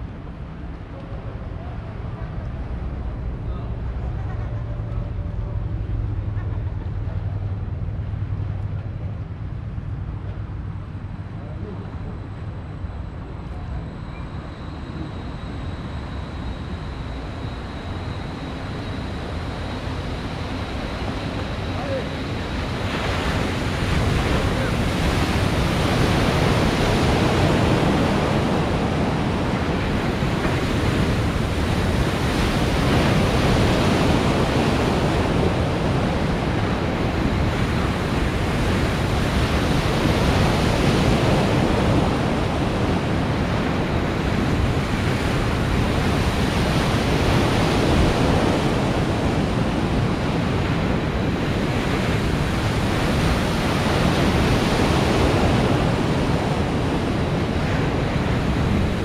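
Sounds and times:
wind buffeting microphone: 0.0s - 59.0s
breaking waves rushing: 18.2s - 59.0s.

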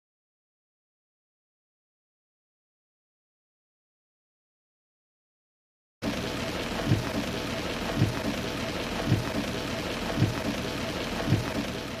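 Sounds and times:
heavy rain on car roof: 6.0s - 12.0s
windscreen wipers thumping: 6.8s - 12.0s.

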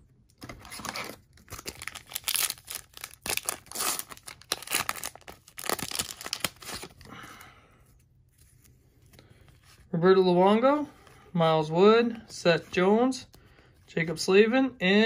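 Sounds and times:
foil wrapper tearing and crinkling: 0.6s - 7.0s.

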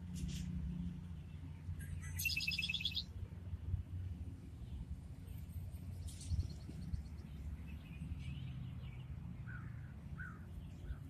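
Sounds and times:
birds chirping: 1.2s - 3.1s, 5.9s - 11.0s
wind rumble on microphone: 3.6s - 8.7s.

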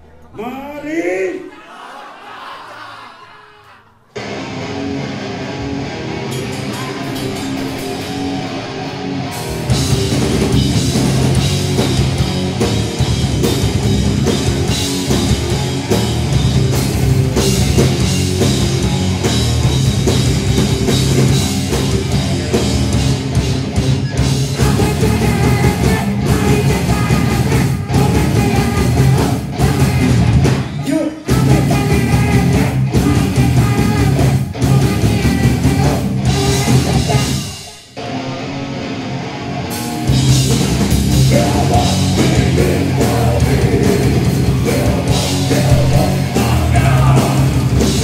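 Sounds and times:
heavy distorted metal band: 4.2s - 48.0s.

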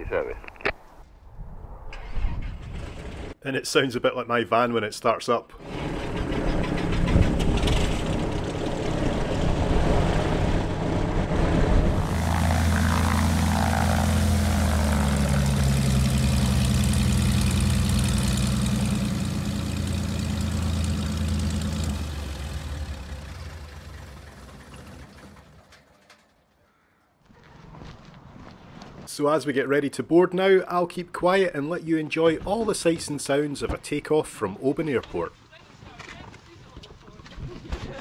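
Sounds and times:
twin piston aircraft engines idling: 5.6s - 26.3s.

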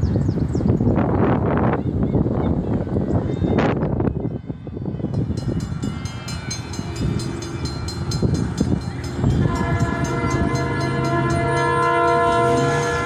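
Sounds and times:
train rumble: 0.0s - 13.0s
crossing warning bell ringing: 4.8s - 13.0s
train air horn chord: 9.1s - 13.0s.

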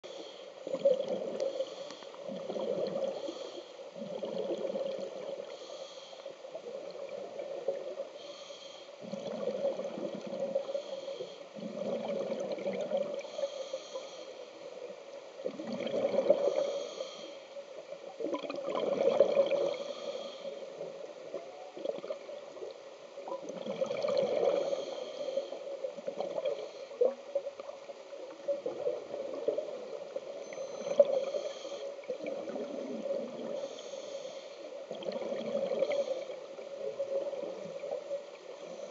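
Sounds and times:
regulator inhale hiss: 0.0s - 2.4s, 3.1s - 3.9s, 5.4s - 6.5s, 8.2s - 9.1s, 10.6s - 11.6s, 13.2s - 14.6s, 16.4s - 17.6s, 19.6s - 20.8s, 24.5s - 25.7s, 26.6s - 27.0s, 30.7s - 32.0s, 33.5s - 34.8s, 35.8s - 36.5s, 38.5s - 38.9s.

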